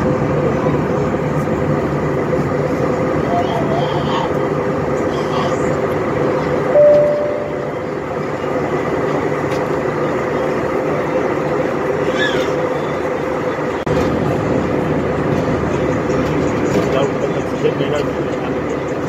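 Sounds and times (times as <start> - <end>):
airliner cabin noise: 0.0 - 19.0
short single tone: 6.7 - 7.8.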